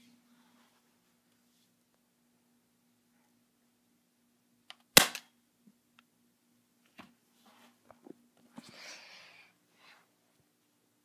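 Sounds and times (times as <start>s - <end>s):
bb gun shot: 5.0s - 5.3s.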